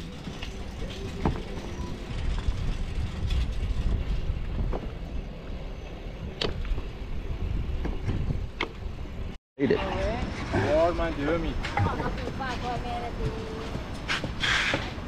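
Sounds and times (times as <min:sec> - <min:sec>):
bicycle and basket rattling: 0:00.0 - 0:05.2
wind rumbling on microphone: 0:00.0 - 0:15.0.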